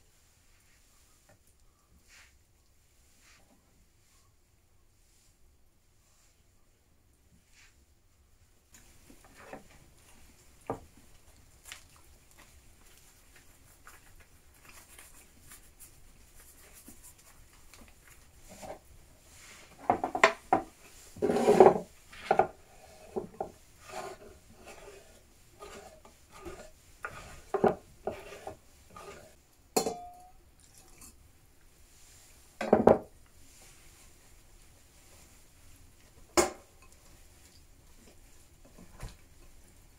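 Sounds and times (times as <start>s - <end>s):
pots knocking on wooden table: 32.6s - 33.1s.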